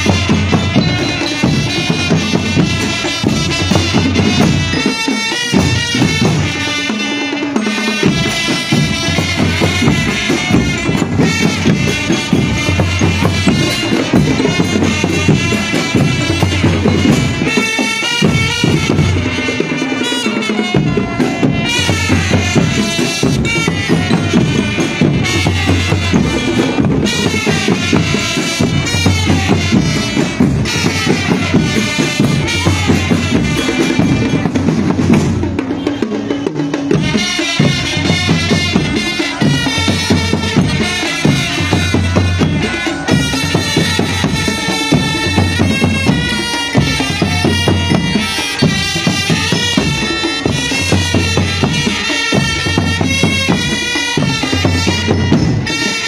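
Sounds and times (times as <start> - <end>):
bass drums: 0.0 - 6.8, 7.8 - 19.9, 20.6 - 56.0
melody line over drums: 0.0 - 56.0
snare drums: 0.0 - 56.0.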